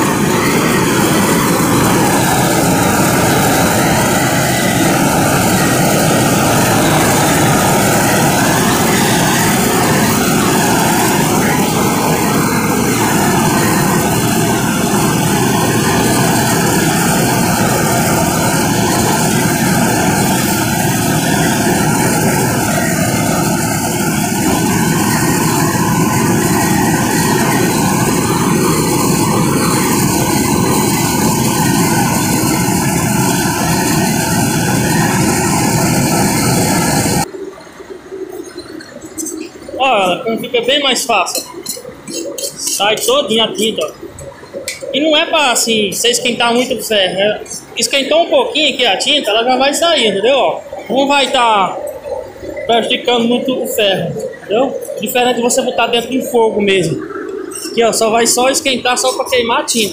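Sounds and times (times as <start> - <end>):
gas torch hissing: 0.0 - 37.3.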